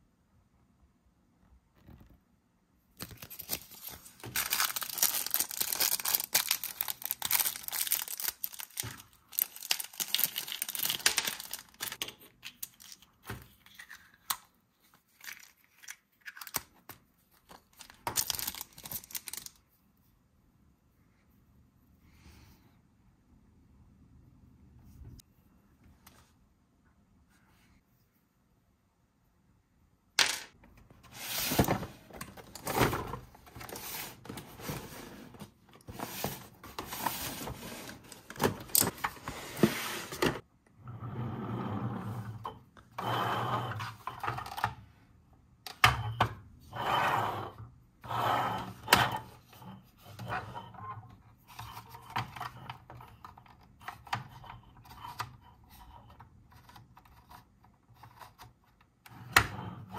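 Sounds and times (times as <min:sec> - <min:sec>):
hands handling plastic toys: 0:02.9 - 0:19.7, 0:30.2 - 0:40.4.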